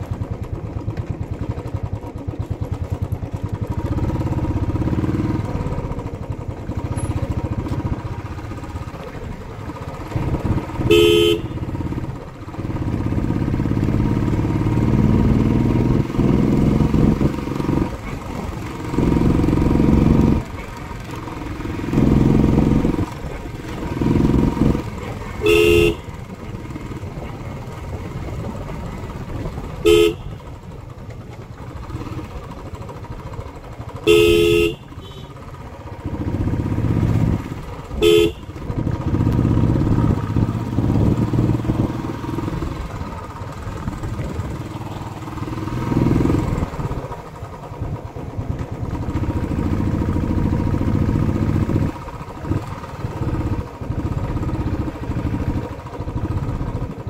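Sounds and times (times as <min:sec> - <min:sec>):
motorcycle engine running: 0:00.0 - 0:57.0
horn blasts: 0:10.5 - 0:11.9, 0:24.9 - 0:26.2, 0:29.8 - 0:30.5, 0:34.0 - 0:35.4, 0:37.9 - 0:38.6.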